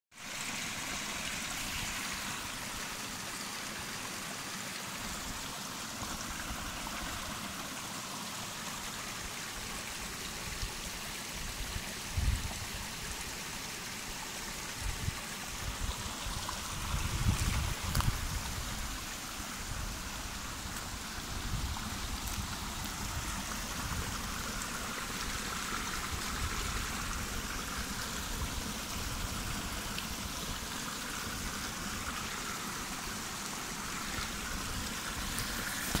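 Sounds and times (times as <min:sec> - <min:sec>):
stream flowing over rocks: 0:00.1 - 0:36.0.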